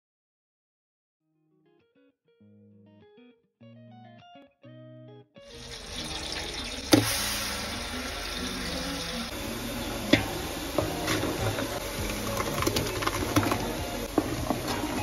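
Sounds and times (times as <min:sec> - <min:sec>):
plucked guitar notes: 0:01.3 - 0:15.0
onion paste sizzling in oil: 0:05.5 - 0:15.0.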